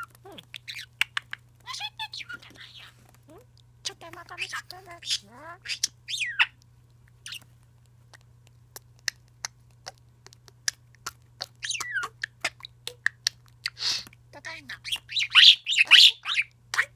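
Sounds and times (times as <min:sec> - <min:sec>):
budgerigar chirping: 0:00.0 - 0:03.0, 0:04.4 - 0:06.6, 0:07.2 - 0:07.5, 0:11.4 - 0:14.0, 0:14.7 - 0:16.9.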